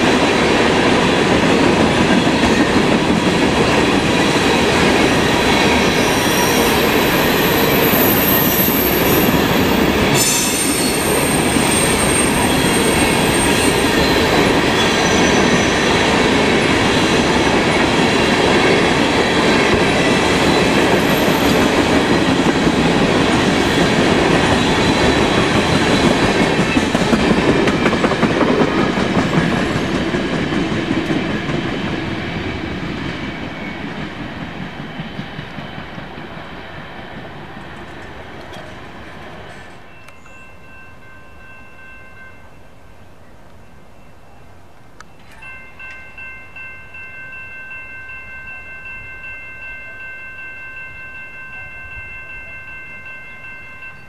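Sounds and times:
train wheels clattering on rails: 0.0s - 40.3s.

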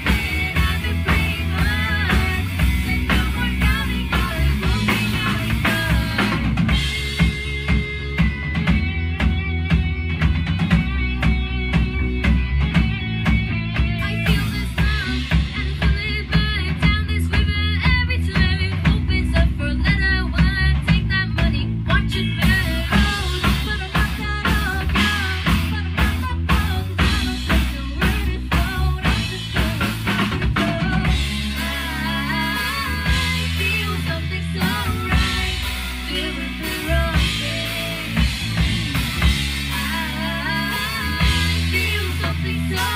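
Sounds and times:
girl singing: 0.0s - 7.4s, 13.7s - 42.9s
distorted electric guitar: 0.0s - 42.9s
drum kit beat: 0.0s - 42.9s
electric bass: 0.0s - 42.9s.

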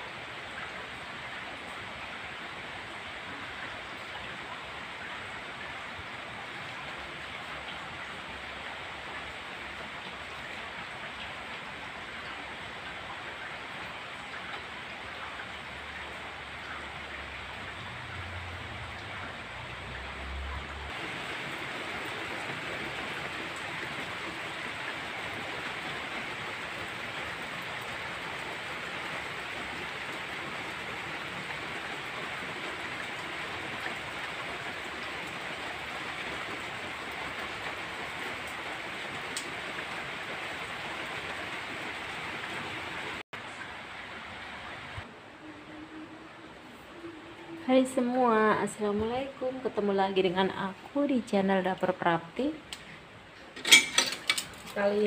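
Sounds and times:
rain on roof and foliage: 0.0s - 55.0s.

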